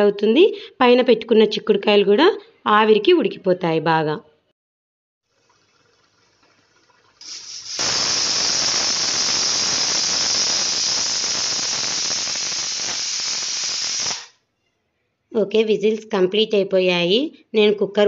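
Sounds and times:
pressure cooker whistling: 7.2s - 14.3s.

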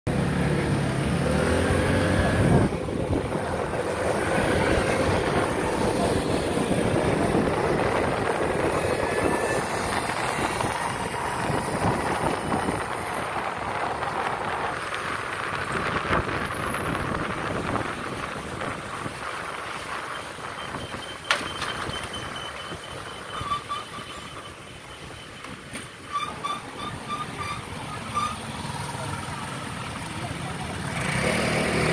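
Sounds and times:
road and wind noise: 0.1s - 31.9s
street traffic engines: 0.1s - 31.9s
short high beeps: 20.1s - 25.5s.

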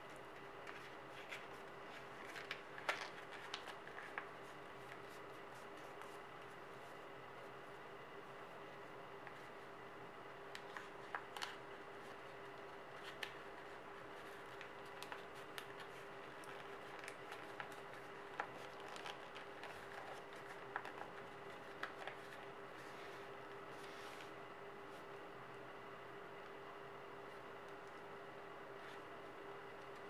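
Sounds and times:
paper crinkling and creasing: 0.0s - 7.6s, 10.5s - 25.1s
faint hiss and low hum: 0.0s - 30.0s.

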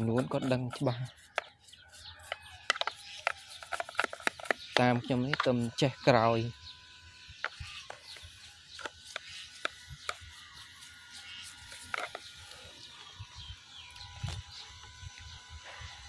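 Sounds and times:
brush clicking on wood: 0.0s - 5.9s, 8.8s - 12.3s.

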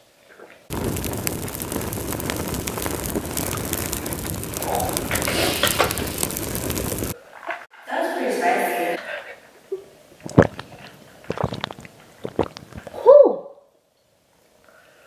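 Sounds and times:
fire burning with crackles: 0.7s - 7.2s, 10.3s - 13.0s.

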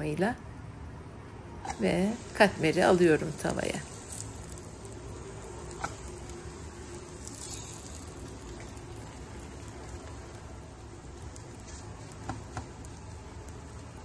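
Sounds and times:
dough rustling: 1.6s - 14.0s
flatbread sizzling in a pan: 1.6s - 14.0s.

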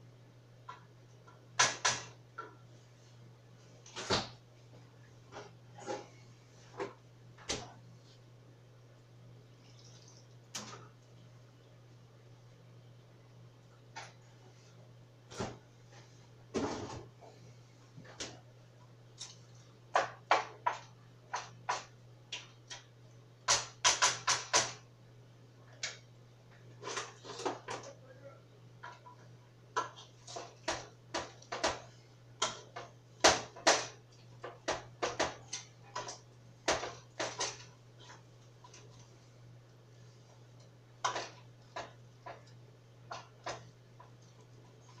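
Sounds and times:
kitchen items knocked and handled: 19.9s - 22.8s, 28.8s - 39.0s, 41.0s - 45.0s.

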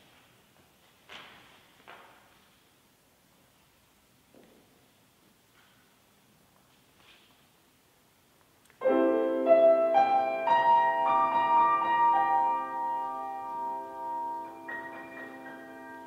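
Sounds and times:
grand piano chord: 8.8s - 16.0s.

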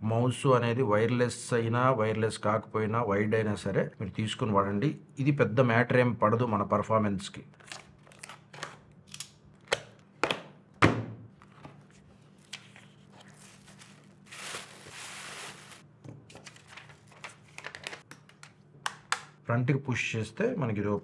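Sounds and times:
wrapping sheet rustling: 11.4s - 18.1s
paper crinkling: 11.4s - 18.5s.

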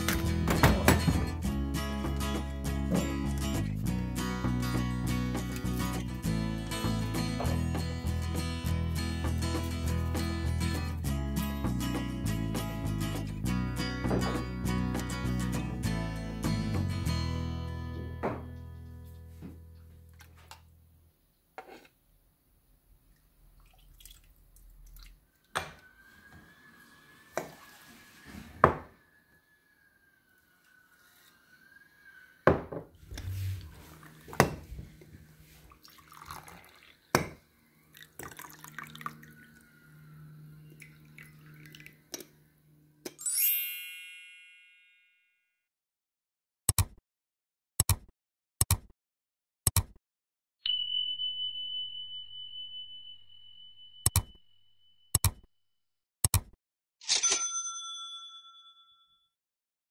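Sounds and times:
tea pouring into cups: 23.5s - 25.6s, 33.2s - 42.4s
bell-like chime: 43.2s - 45.4s, 50.6s - 55.1s, 57.1s - 59.4s
steady high tone: 50.6s - 55.0s.

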